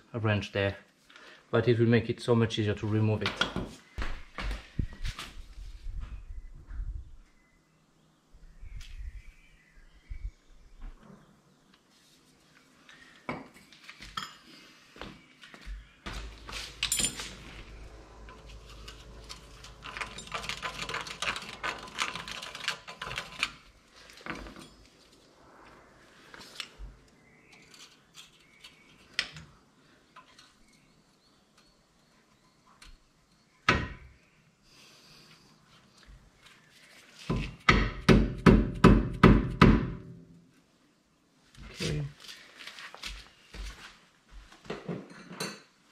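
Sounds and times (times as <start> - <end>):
wrench clinking and scraping: 16.3 - 23.6.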